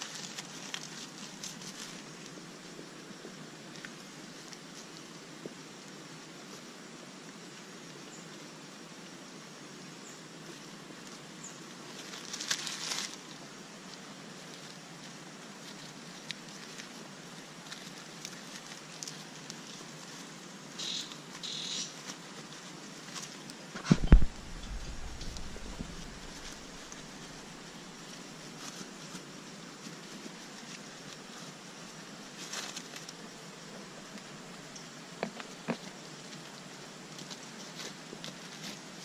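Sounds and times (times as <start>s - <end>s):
stick and dry leaves scraping rock: 0.0s - 2.3s, 11.9s - 13.5s, 14.4s - 33.3s
faint hiss: 0.0s - 39.0s.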